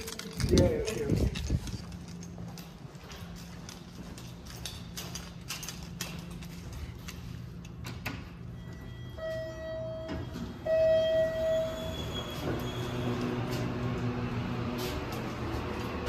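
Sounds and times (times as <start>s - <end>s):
footsteps along a hallway: 0.0s - 16.0s
elevator arrival chime: 8.3s - 13.7s.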